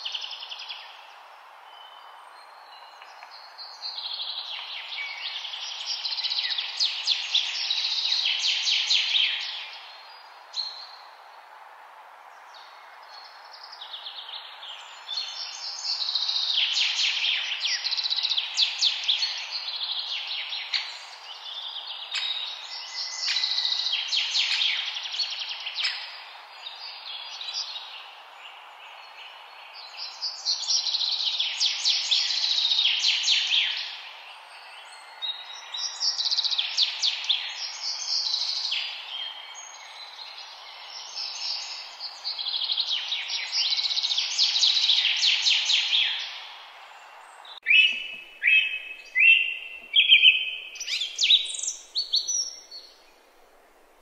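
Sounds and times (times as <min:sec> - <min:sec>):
songbirds chirping: 0:00.0 - 0:54.0
steady background hiss: 0:00.0 - 0:54.0.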